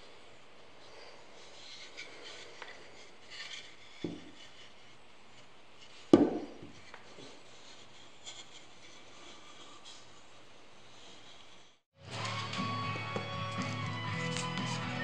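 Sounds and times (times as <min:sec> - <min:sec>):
wood rubbing and scraping: 0:00.8 - 0:15.0
wooden block knocking: 0:06.1 - 0:06.8.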